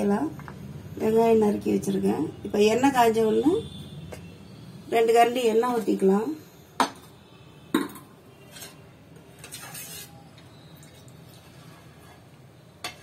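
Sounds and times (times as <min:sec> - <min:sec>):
scraping rustle: 0:09.4 - 0:10.2.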